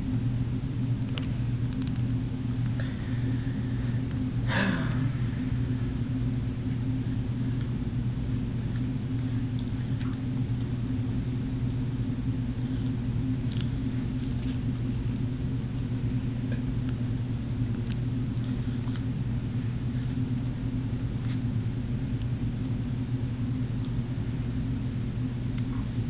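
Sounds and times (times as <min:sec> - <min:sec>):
low hum: 0:00.0 - 0:26.0
dog chewing apple crunches: 0:13.4 - 0:15.2.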